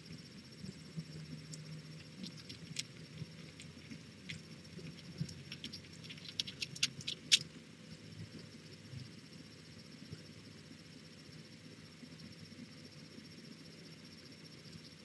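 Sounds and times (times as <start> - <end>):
kittens clicking and pattering: 1.2 - 7.6.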